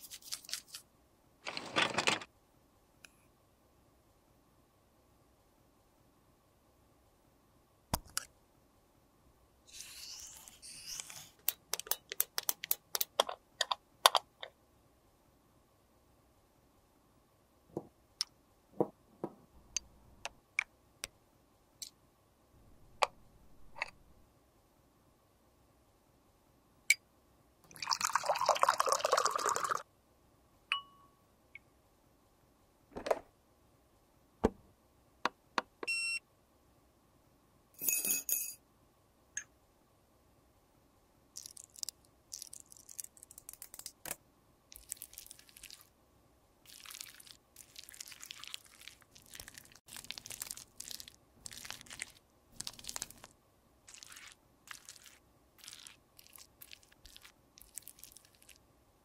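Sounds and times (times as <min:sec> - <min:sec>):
clicks and taps: 0:11.4 - 0:14.6
clinks with ringing tone: 0:37.8 - 0:38.6.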